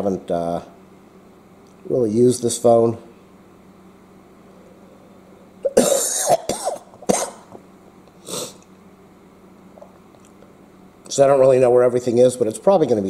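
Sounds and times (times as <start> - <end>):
man coughing and clearing throat: 5.6 - 7.6.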